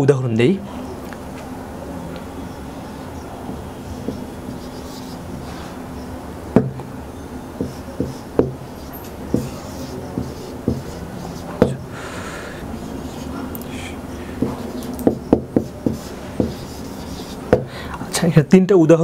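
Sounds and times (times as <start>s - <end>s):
marker scratching on whiteboard: 3.5s - 5.8s, 7.6s - 17.7s
marker tip tapping board: 4.0s - 4.6s, 6.5s - 6.9s, 7.6s - 11.9s, 14.4s - 17.7s.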